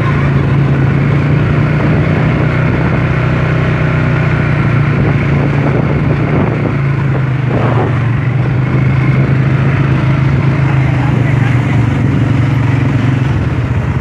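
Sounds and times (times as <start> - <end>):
quad bike engine humming: 0.0 - 14.0.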